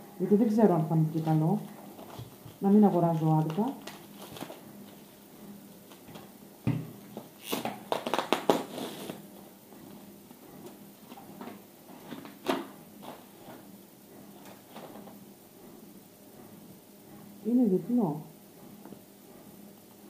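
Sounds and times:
packaging rustling: 1.2 - 5.2, 7.1 - 9.2.

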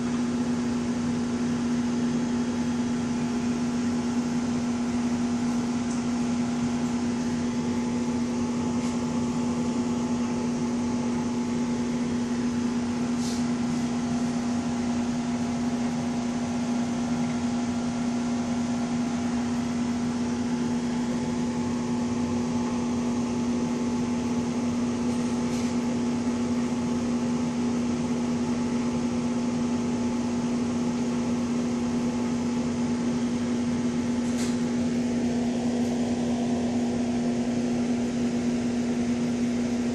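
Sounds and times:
aquarium pump humming: 0.0 - 39.9.

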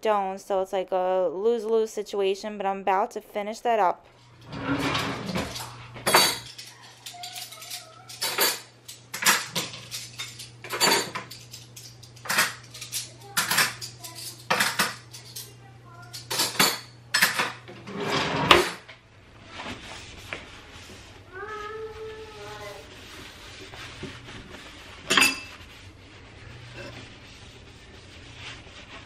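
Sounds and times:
cutlery and dishes clinking: 4.4 - 18.9, 25.0 - 25.6.

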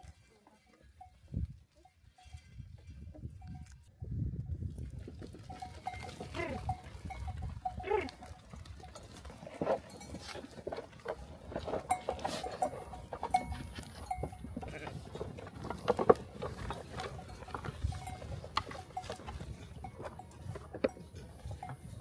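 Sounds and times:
animal bells clinking: 0.0 - 22.0
animals jostling: 4.6 - 22.0
sheep and goats bleating: 5.4 - 20.4.

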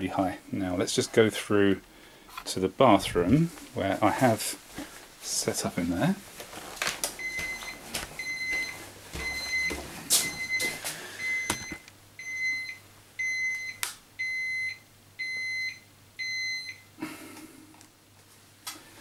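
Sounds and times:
thermometer beeping: 7.2 - 16.8.

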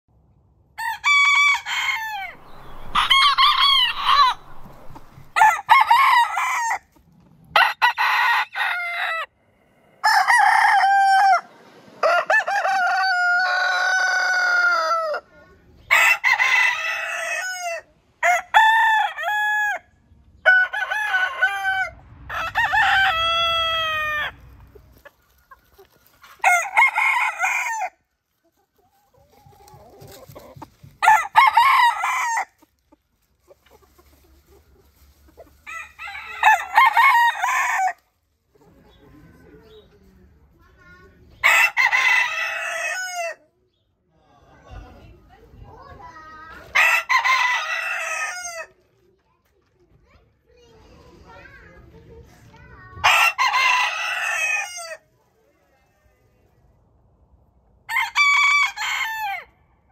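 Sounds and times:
roosters crowing: 0.8 - 15.3, 15.9 - 24.8, 25.4 - 28.1, 29.3 - 32.7, 35.5 - 38.0, 41.4 - 43.4, 46.7 - 48.7, 53.0 - 55.0, 57.9 - 59.6.

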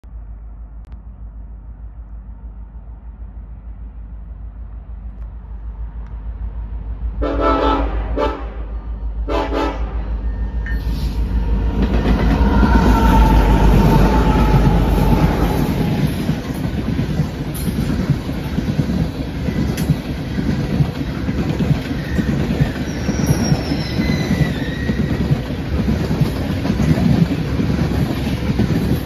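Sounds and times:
locomotive horn blasts: 7.2 - 10.2
locomotives rumbling: 9.8 - 29.0.

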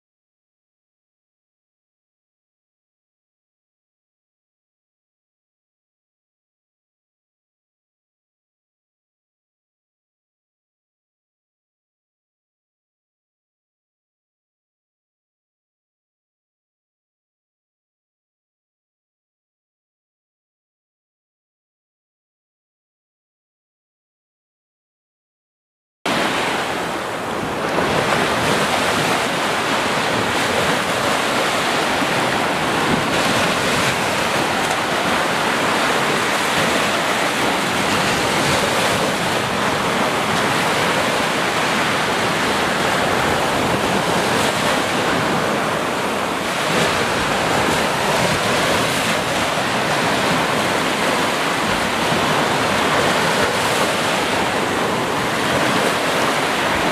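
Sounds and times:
sea waves breaking on beach: 26.1 - 56.9.

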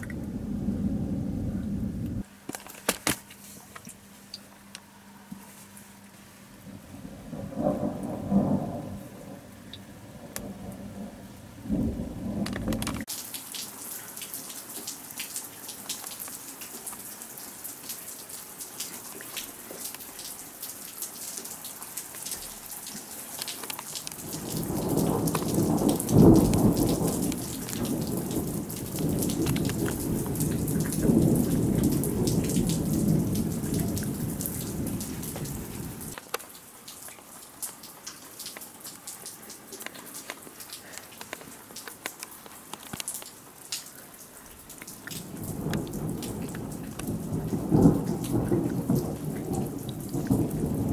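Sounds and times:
thunder crack and rumble: 0.0 - 2.2, 6.7 - 13.1, 24.1 - 36.2, 45.1 - 50.9
steady rain: 0.0 - 50.9.

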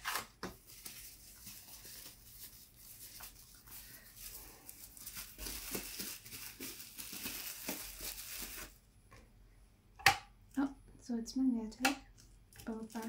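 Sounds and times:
paper packaging rustling: 0.0 - 8.8.

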